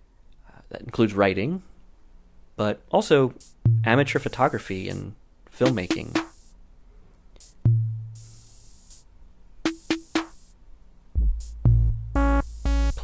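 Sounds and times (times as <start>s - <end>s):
hi-hat hits: 3.3s - 6.6s, 7.4s - 10.6s, 11.2s - 13.0s
heavy deep bass notes: 3.4s - 5.1s, 7.6s - 8.7s, 11.2s - 13.0s
kick drum thump: 3.6s - 4.0s, 7.6s - 8.2s, 11.2s - 12.2s.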